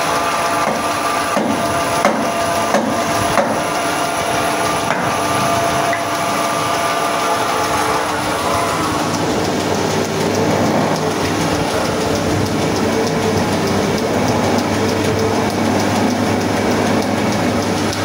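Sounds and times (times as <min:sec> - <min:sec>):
lathe motor hum: 0:00.0 - 0:18.0
wood grinding noise: 0:00.0 - 0:18.0
light repeated ticks: 0:00.1 - 0:18.0.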